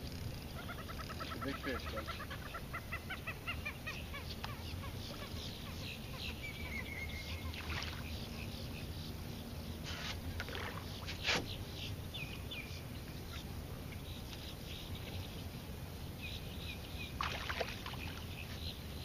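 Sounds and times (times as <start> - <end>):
fish splashing in water: 7.5 - 8.1, 10.4 - 11.2, 17.2 - 18.3.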